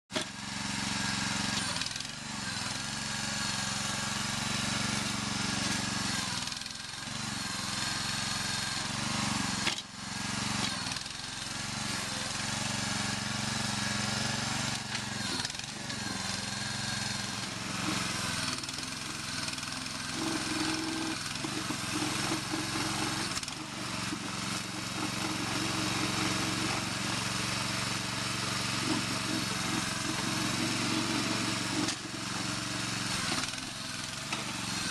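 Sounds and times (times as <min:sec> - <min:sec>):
small gas engine running: 0:00.1 - 0:34.9.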